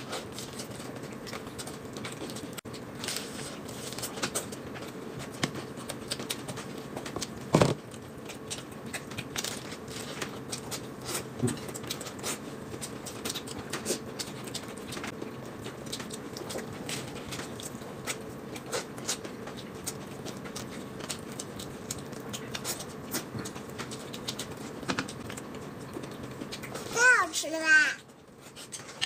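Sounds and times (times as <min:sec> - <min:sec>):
lettuce crunching while chewing: 0:00.0 - 0:27.0.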